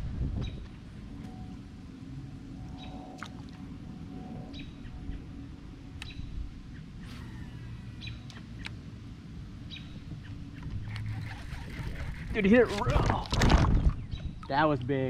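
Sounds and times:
steady low rumble: 0.0s - 15.0s
small bird chirping: 6.0s - 8.8s, 9.6s - 11.7s.

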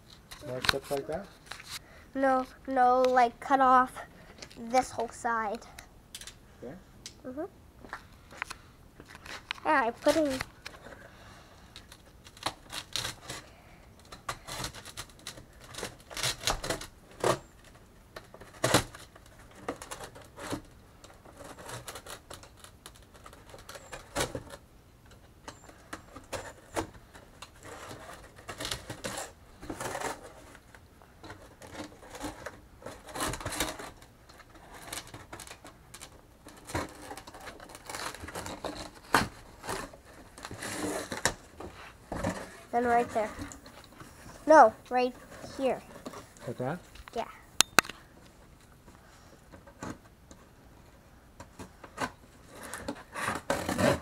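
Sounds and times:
knife cutting cardboard: 52.6s - 54.0s.

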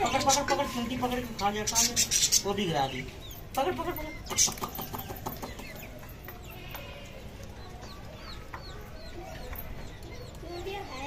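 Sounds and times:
chick peeping: 0.0s - 11.0s.

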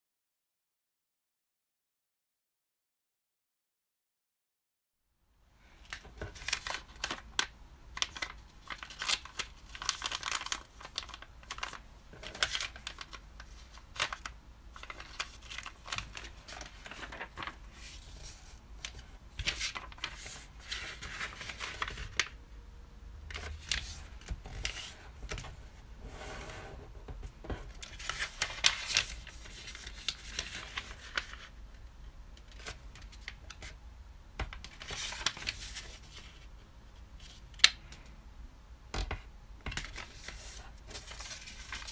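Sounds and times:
paper rustling and crinkling: 5.7s - 22.4s, 23.3s - 25.8s, 27.1s - 31.6s, 34.4s - 36.6s, 39.0s - 41.9s.

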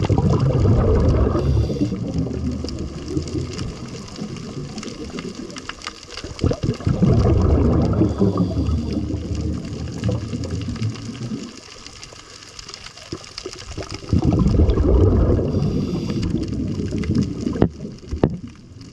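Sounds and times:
underwater scuba exhaust bubbles: 0.0s - 18.9s.

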